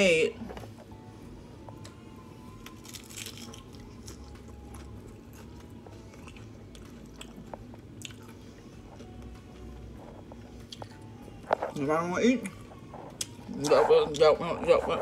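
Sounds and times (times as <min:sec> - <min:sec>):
chewing crackles: 0:02.6 - 0:11.7.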